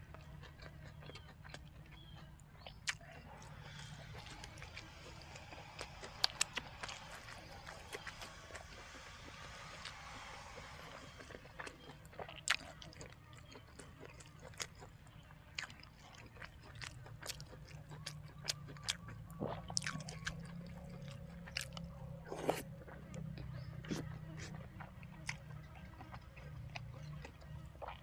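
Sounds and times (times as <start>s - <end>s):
person chewing food: 0.0s - 28.0s.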